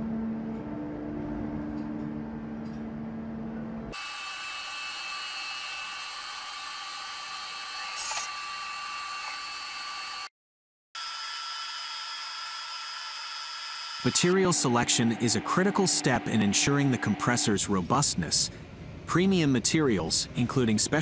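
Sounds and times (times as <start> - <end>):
low machine hum: 0.0 - 4.0, 14.0 - 21.0
machine tool cutting whine: 3.9 - 10.3, 11.0 - 18.1.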